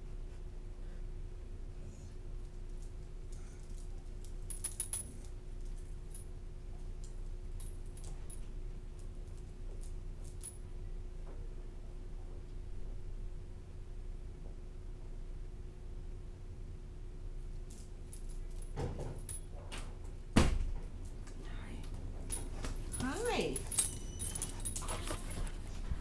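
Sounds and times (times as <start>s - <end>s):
steady low hum: 0.0s - 26.0s
metal dog tags jingling: 3.7s - 6.2s, 22.2s - 25.7s.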